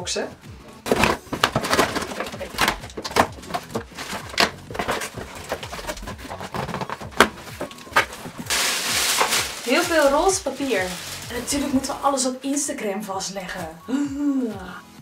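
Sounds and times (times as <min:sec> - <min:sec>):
tissue paper rustling: 0:00.9 - 0:12.2
scissors cutting cardboard box: 0:01.0 - 0:08.2.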